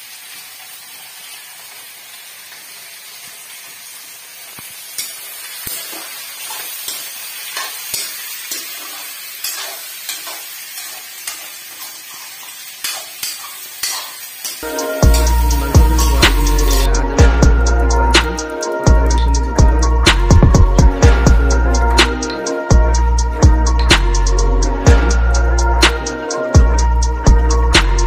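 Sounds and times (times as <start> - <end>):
meat and onions sizzling: 0.0 - 28.0
metal spatula scraping a pan: 5.0 - 15.4.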